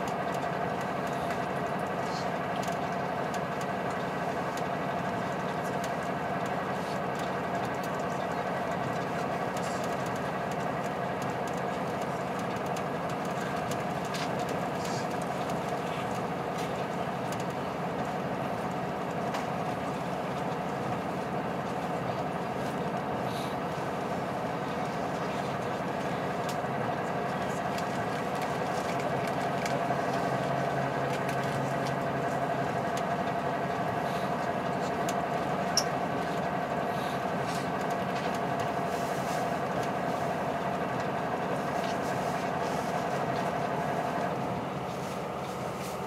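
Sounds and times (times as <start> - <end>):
diesel railcar engine drone: 0.0 - 46.0.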